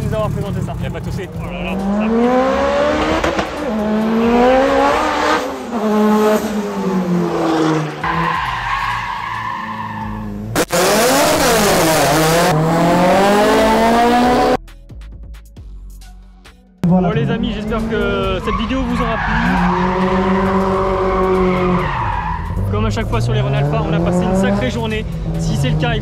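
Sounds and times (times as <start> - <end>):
car engines revving: 0.0 - 14.6, 16.8 - 26.0
tyres squealing and skidding: 1.3 - 12.5, 16.9 - 24.6.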